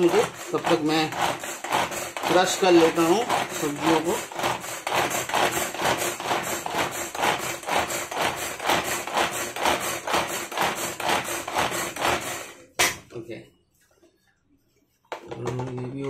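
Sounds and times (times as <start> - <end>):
pull-cord vegetable chopper: 0.0 - 12.7.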